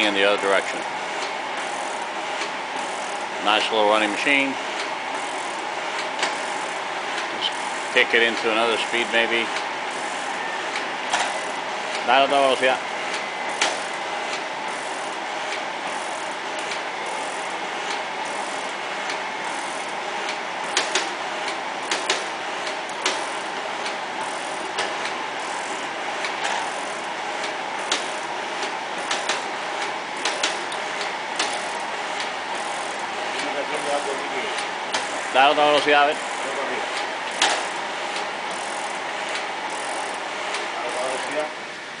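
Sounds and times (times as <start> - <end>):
mechanical shaper clattering: 13.1 - 41.4.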